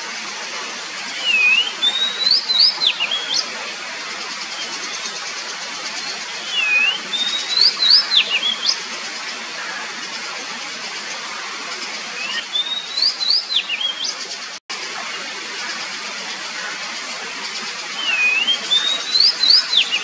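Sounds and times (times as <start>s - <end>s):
bird whistling song: 1.2s - 3.5s, 6.0s - 8.8s, 12.2s - 14.2s, 18.0s - 20.0s.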